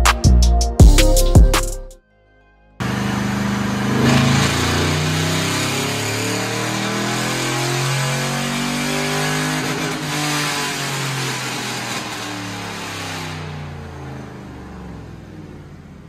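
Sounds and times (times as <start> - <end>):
pickup engine on dyno wavering: 2.8 - 16.0.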